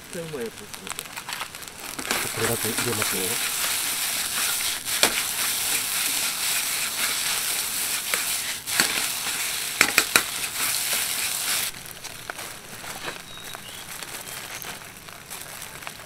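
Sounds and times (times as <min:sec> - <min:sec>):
rice sizzling in a wok: 0:00.0 - 0:16.0
ladle scraping and clacking on wok: 0:01.9 - 0:11.7.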